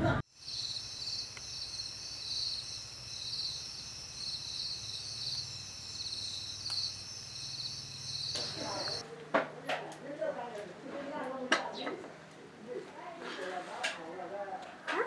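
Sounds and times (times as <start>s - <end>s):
crickets chirping: 0.2s - 9.0s.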